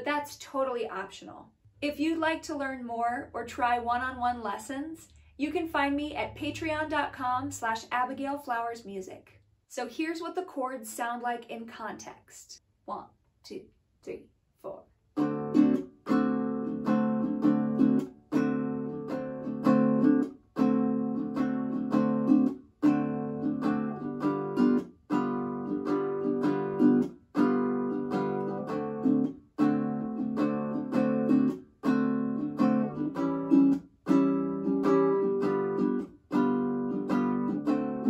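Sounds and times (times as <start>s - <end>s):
ukulele strumming: 15.2s - 38.0s.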